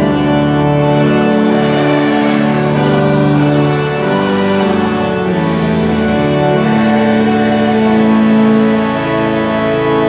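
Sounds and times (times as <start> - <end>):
choir singing: 0.0 - 10.0
organ chords: 0.0 - 10.0.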